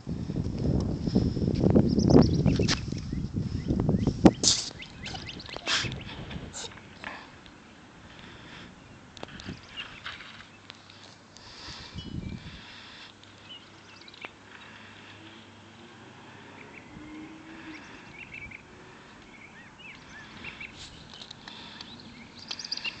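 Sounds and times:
faint outdoor background noise: 0.0s - 23.0s
small birds chirping: 1.6s - 23.0s.

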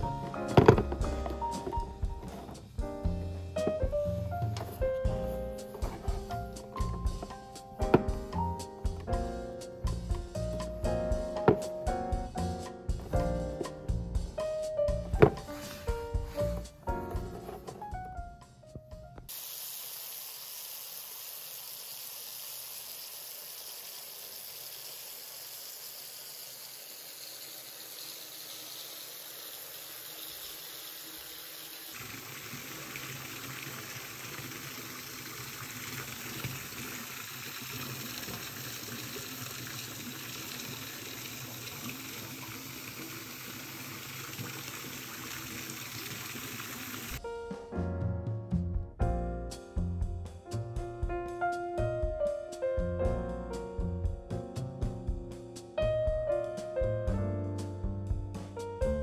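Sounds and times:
water running from a tap: 3.8s - 9.2s, 19.3s - 47.2s.

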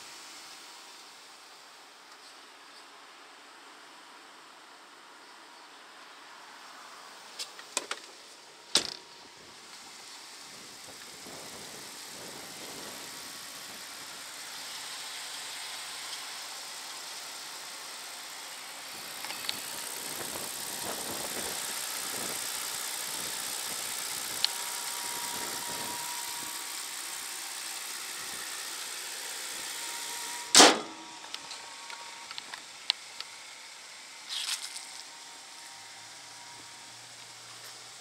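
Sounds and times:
steady hiss: 0.0s - 4.6s, 6.0s - 38.0s
car bonnet slamming shut: 30.5s - 31.2s.

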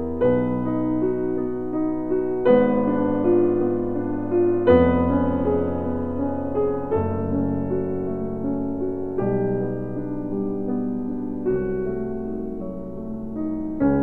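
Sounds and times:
piano chords: 0.0s - 14.0s.

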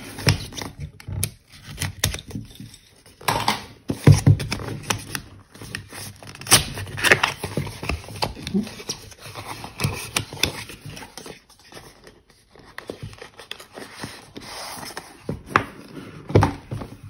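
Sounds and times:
cardboard sleeve scraping: 4.4s - 17.0s.

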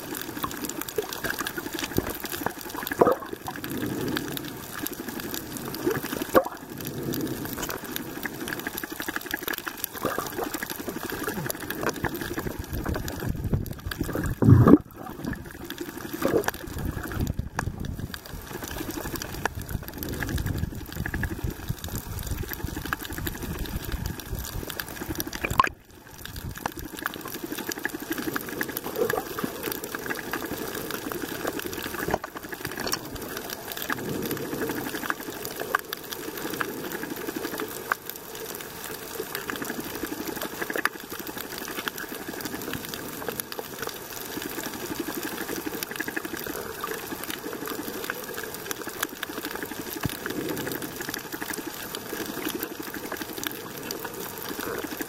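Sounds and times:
underwater rush of water: 0.0s - 55.0s.

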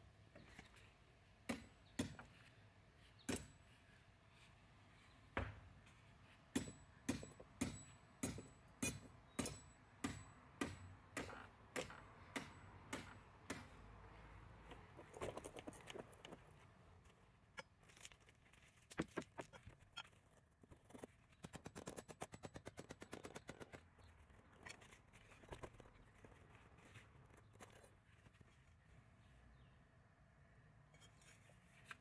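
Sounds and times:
sledgehammer striking metal rod: 6.6s - 13.7s.

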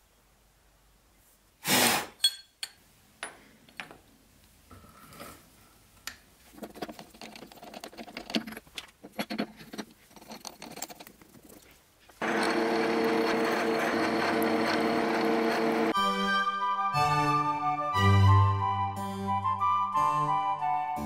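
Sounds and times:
tooling clattering and knocking: 6.4s - 15.9s.

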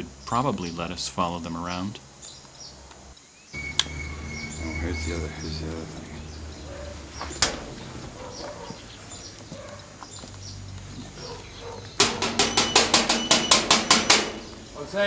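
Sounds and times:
knocking on sheet-metal door: 12.0s - 14.6s.

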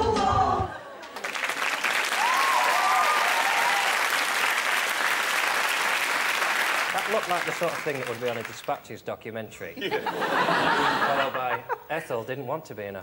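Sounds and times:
choir singing: 0.0s - 0.9s
audience applause: 1.0s - 8.8s.

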